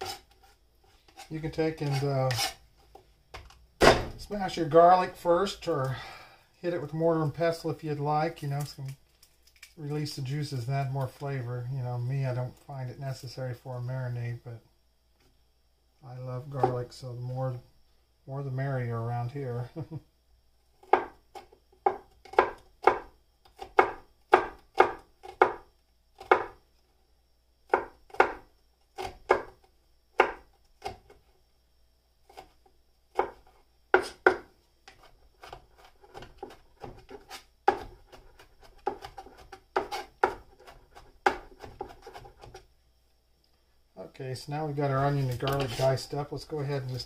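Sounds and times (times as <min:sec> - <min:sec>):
knife chopping on cutting board: 0:34.0 - 0:42.6.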